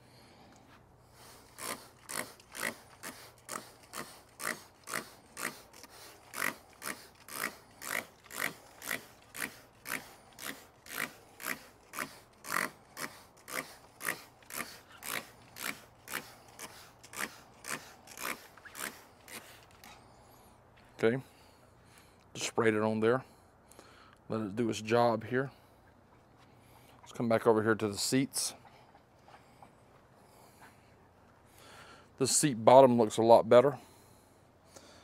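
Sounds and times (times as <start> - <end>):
spray bottle spritzing: 1.2 - 19.9.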